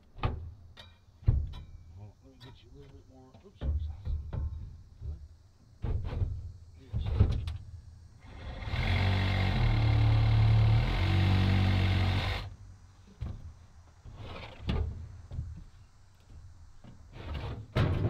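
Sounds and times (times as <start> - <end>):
metal knocks and clunks: 0.2 - 1.8, 2.4 - 7.6, 14.1 - 15.7, 16.8 - 18.0
cordless impact tool whirring: 8.2 - 12.5.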